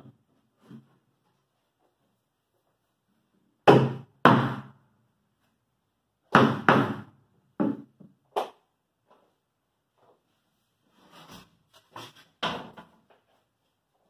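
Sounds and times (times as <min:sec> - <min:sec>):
knocks on plywood: 0:06.3 - 0:08.1.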